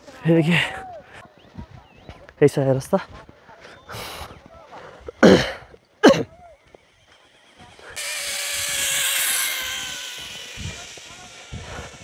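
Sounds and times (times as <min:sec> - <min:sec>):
person coughing: 0:05.2 - 0:06.3.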